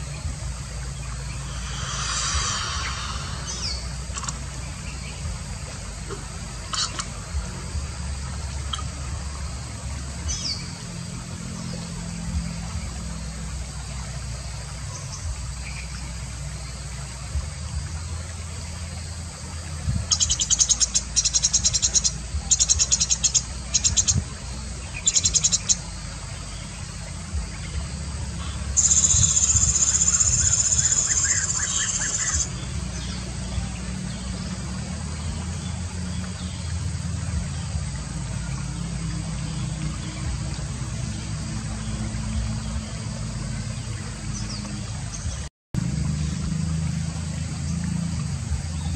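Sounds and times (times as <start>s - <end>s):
low rumble: 0.0s - 6.6s
high insect buzz: 0.0s - 12.0s, 20.1s - 34.5s.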